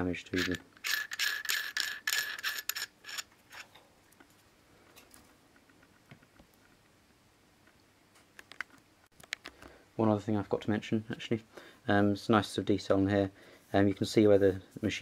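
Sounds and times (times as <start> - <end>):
metal screw thread scraping and squeaking: 0.3 - 3.8.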